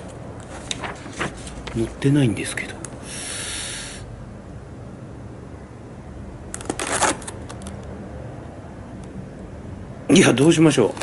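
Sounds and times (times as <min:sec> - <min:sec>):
papers rustling: 0:00.0 - 0:02.0, 0:10.8 - 0:11.0.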